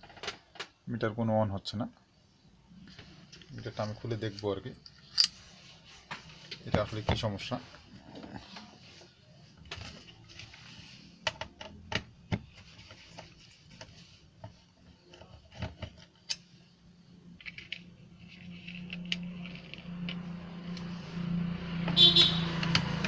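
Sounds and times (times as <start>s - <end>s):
rubbing on plastic: 12.5s - 15.5s.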